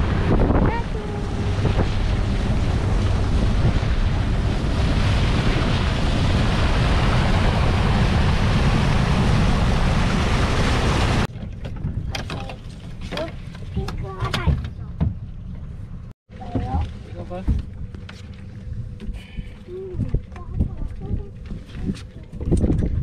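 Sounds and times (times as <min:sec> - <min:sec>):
water rushing past boat hull: 0:00.0 - 0:14.9
wind buffeting microphone: 0:00.0 - 0:15.2, 0:18.6 - 0:23.0.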